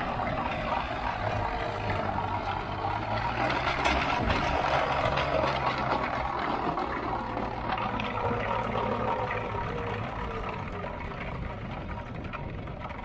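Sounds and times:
engine hum: 0:00.0 - 0:13.0
trencher chain churning soil: 0:00.0 - 0:13.0.

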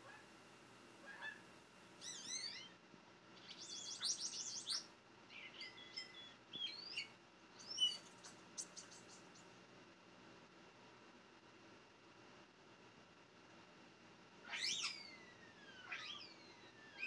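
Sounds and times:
starlings whistling and chirping: 0:02.0 - 0:02.7, 0:03.4 - 0:09.4, 0:14.5 - 0:17.0.

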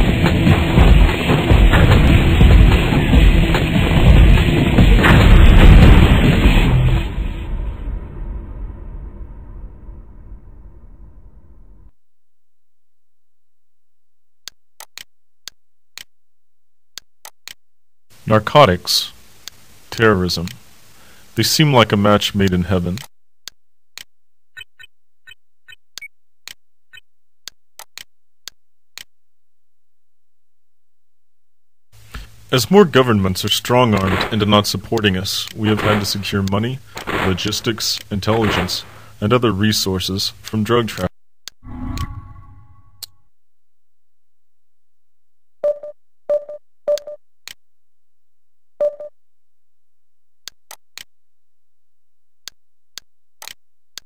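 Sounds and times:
faint clicks: 0:34.9 - 0:38.9.

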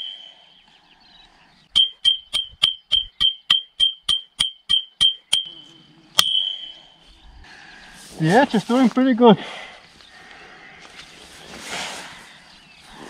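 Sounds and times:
knife striking metal pole: 0:01.8 - 0:05.6, 0:06.2 - 0:06.8.

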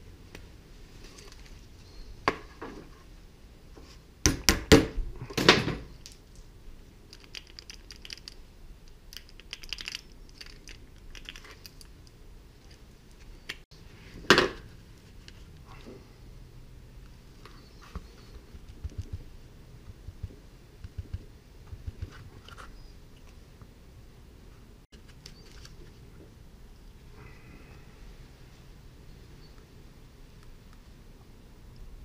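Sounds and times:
small hard objects clinking: 0:07.1 - 0:08.4, 0:09.1 - 0:12.1.

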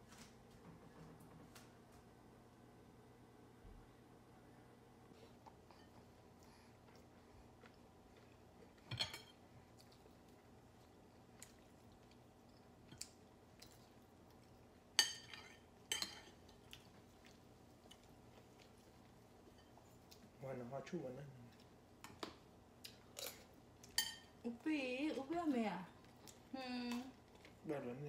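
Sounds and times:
cutlery clinking against plates: 0:08.8 - 0:09.4, 0:15.0 - 0:16.7, 0:22.0 - 0:24.4.

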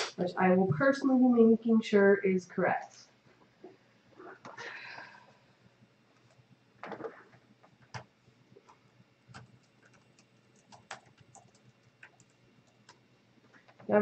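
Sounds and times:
faint clicks and taps: 0:06.1 - 0:14.0.

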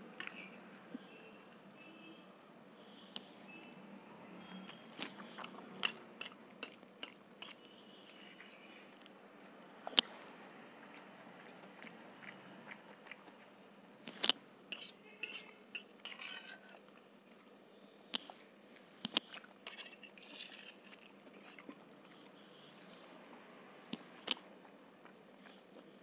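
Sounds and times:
chewing noodles: 0:04.6 - 0:07.6, 0:09.8 - 0:14.4, 0:18.2 - 0:23.2
fork clinking on metal plate: 0:05.4 - 0:07.6, 0:14.8 - 0:16.7, 0:19.7 - 0:21.0.

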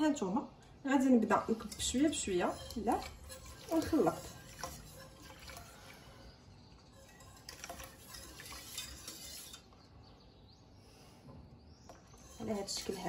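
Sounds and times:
wire whisk stirring: 0:01.1 - 0:09.8, 0:11.9 - 0:13.0
whisk knocking against a pot: 0:01.4 - 0:05.7, 0:07.0 - 0:09.6, 0:12.2 - 0:13.0
liquid pouring into a pot: 0:01.4 - 0:09.7.

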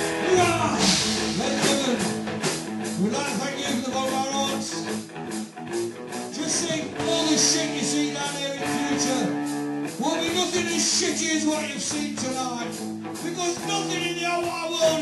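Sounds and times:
drums: 0:00.0 - 0:15.0
electric guitar: 0:00.0 - 0:15.0
person singing: 0:00.2 - 0:02.2, 0:06.3 - 0:15.0.

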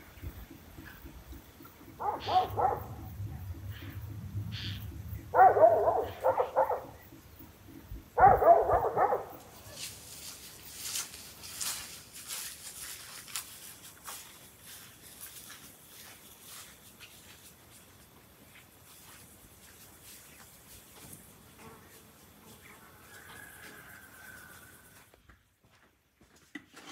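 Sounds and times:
dog barking: 0:02.0 - 0:03.1, 0:05.3 - 0:07.0, 0:08.2 - 0:09.6
faint insect buzz: 0:18.5 - 0:25.1.

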